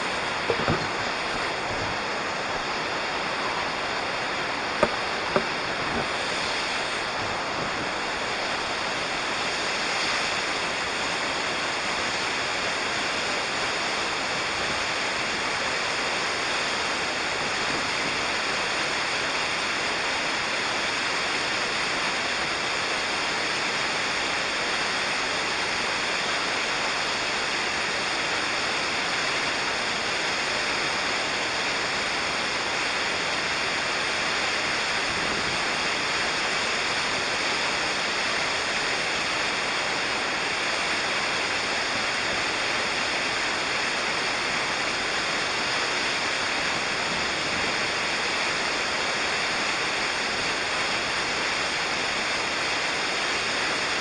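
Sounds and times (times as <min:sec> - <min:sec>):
waterfall rushing: 0:00.0 - 0:17.3.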